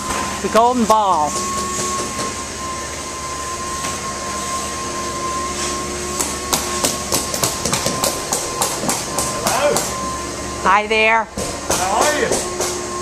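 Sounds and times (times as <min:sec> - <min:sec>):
machine hum with high whine: 0:00.0 - 0:13.0
hammer tapping on wood: 0:06.2 - 0:10.0, 0:11.4 - 0:12.8.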